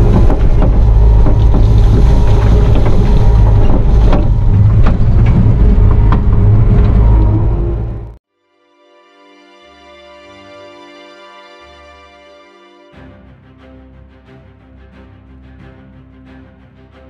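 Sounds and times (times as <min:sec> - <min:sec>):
diesel engine running: 0:00.0 - 0:08.2.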